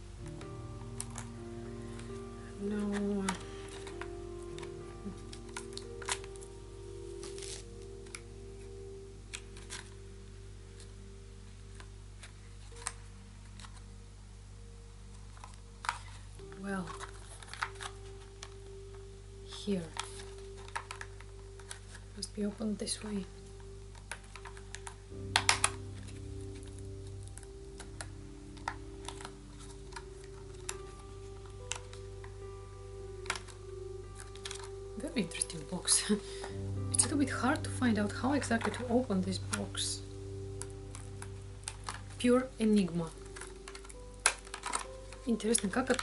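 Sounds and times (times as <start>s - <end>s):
faint steady hum: 0.0s - 46.0s
soft background music: 0.0s - 46.0s
plastic packaging clicks and taps: 2.8s - 6.5s, 15.3s - 18.7s, 19.8s - 22.0s, 23.9s - 32.4s, 33.2s - 34.7s, 40.6s - 42.2s, 43.0s - 46.0s.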